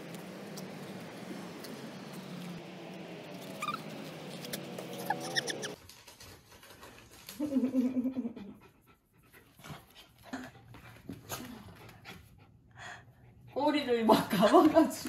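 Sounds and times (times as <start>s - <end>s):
dogs panting: 3.5s - 15.0s.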